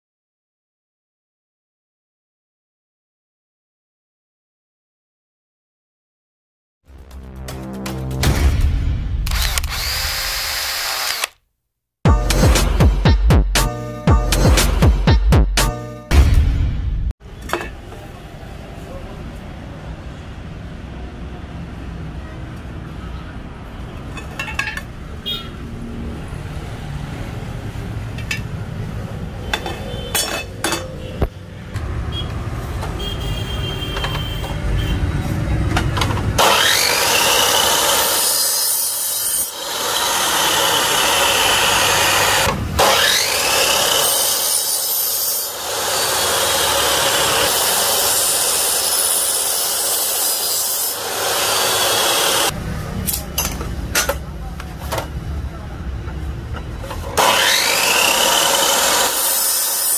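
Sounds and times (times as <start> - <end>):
electric mitre saw cutting metal: 9.3 - 11.4, 36.4 - 52.5, 57.2 - 59.9.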